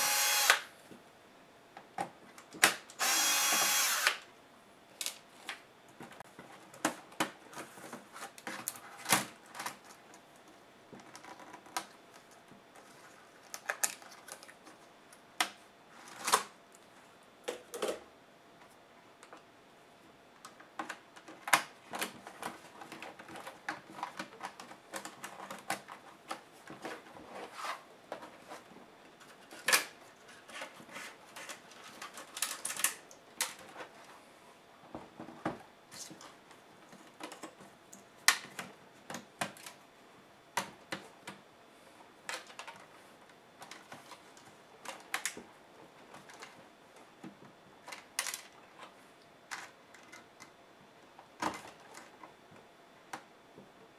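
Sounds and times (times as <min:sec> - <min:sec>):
electric screwdriver whirring: 0:00.0 - 0:00.7, 0:03.0 - 0:04.2.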